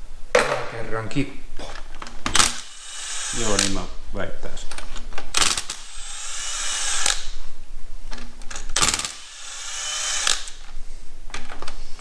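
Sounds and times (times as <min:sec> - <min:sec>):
cordless drill motor rattling: 0:02.3 - 0:03.9, 0:05.3 - 0:07.3, 0:08.5 - 0:10.6.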